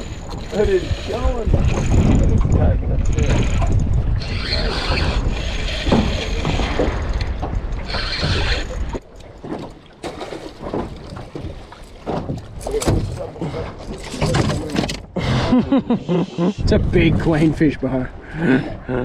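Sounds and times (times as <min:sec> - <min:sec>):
wind rumbling on microphone: 0:00.0 - 0:09.0, 0:16.6 - 0:18.8
fishing reel buzzing: 0:03.2 - 0:06.9, 0:07.8 - 0:08.9.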